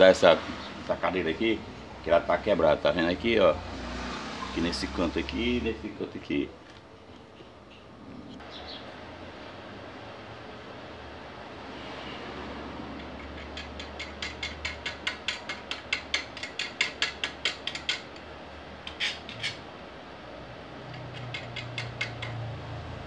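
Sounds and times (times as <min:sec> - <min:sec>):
short rasp: 0:18.9 - 0:19.6, 0:21.0 - 0:22.4.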